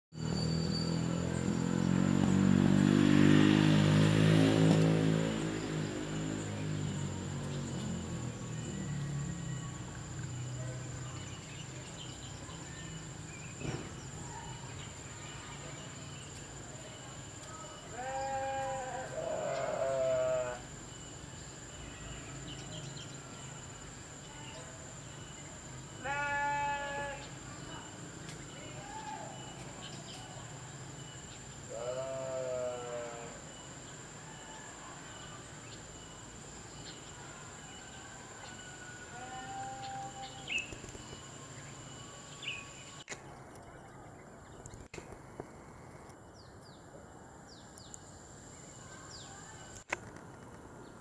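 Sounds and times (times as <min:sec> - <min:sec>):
vehicle engine passing: 0:00.2 - 0:14.7
animal bleat: 0:17.9 - 0:20.6, 0:26.0 - 0:27.3, 0:31.7 - 0:33.4, 0:39.1 - 0:40.4.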